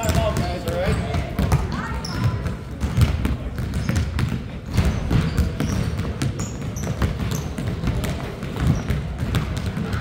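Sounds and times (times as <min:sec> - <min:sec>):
basketball bouncing on court: 0:00.0 - 0:10.0
shoe squeaks: 0:01.8 - 0:02.4, 0:04.7 - 0:07.7, 0:08.6 - 0:09.1.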